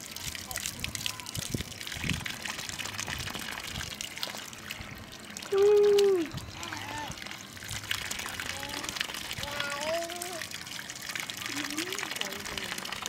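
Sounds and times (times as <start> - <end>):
hose water splashing into puddle: 0.0 - 13.0
high voice calling out: 5.4 - 7.3, 8.4 - 10.5.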